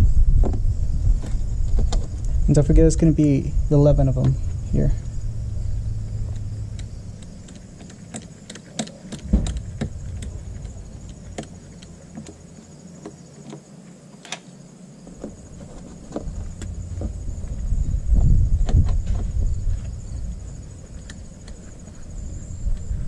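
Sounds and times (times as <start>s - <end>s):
single knock: 9.2s - 11.6s.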